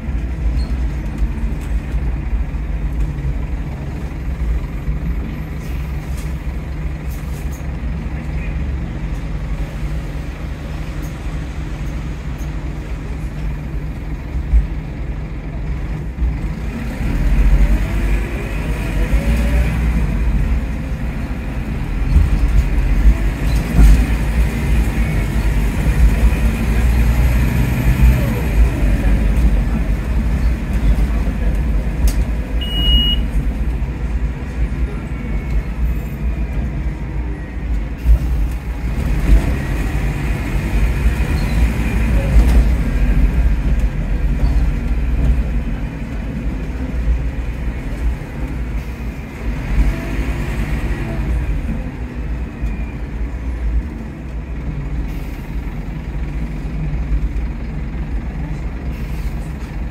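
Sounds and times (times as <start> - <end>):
bus engine and gearbox whine: 0.0 - 59.9
short high beep: 32.6 - 33.3.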